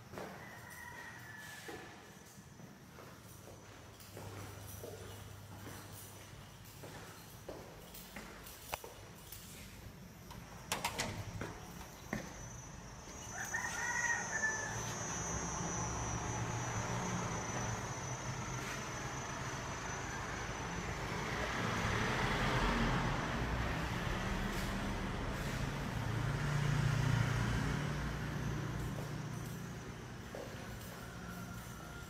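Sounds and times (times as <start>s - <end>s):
rooster crowing: 0.1s - 2.1s, 11.9s - 17.4s, 24.5s - 32.0s
vehicle passing: 10.8s - 32.0s.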